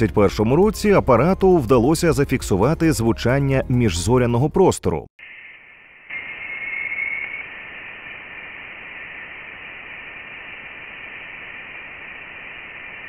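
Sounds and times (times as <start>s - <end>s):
high whistling tones: 5.2s - 8.4s
static hiss: 5.2s - 13.0s.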